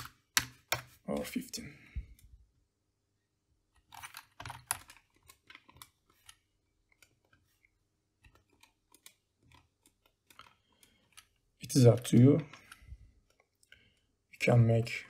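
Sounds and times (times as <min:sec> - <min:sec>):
computer keyboard keystrokes: 0:00.0 - 0:00.9, 0:03.8 - 0:07.4.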